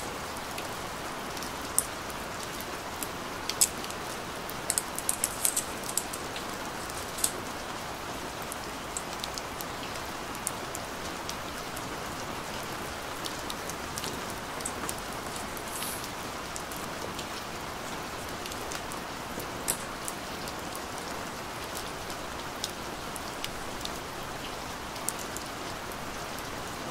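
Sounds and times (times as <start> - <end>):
steady rain-like hiss: 0.0 - 26.9
plastic film being peeled: 4.5 - 7.4, 15.2 - 16.1.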